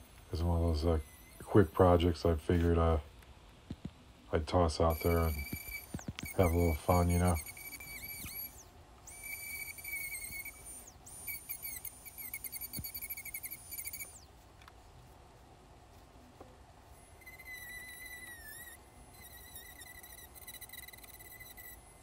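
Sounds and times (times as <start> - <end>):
rotary tool grinding wood: 4.8 - 14.3.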